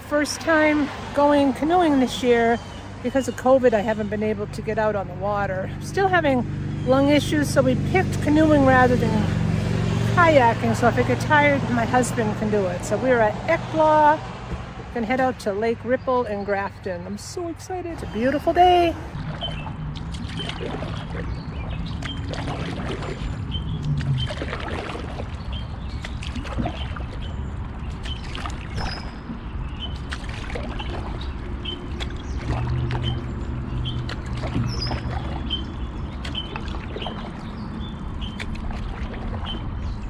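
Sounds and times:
paddles stroking and dripping: 0.0 - 40.0
knocks against canoe hull: 14.4 - 14.8
bird chirping: 18.0 - 24.4, 25.4 - 30.2, 30.8 - 38.6.

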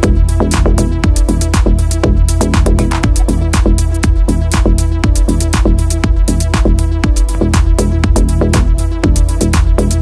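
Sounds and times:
electronic dance music: 0.0 - 10.0.

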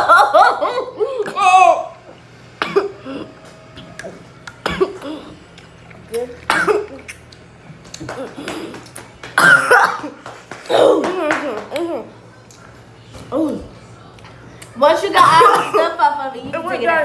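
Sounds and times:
girl coughing: 2.6 - 3.4, 4.6 - 5.4, 6.5 - 7.1, 9.4 - 11.1, 15.2 - 16.0.

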